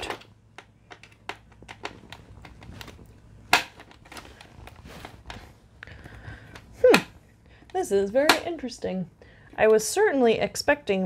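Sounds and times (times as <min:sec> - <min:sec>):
keyboard parts clicking and rattling: 0:00.0 - 0:06.7.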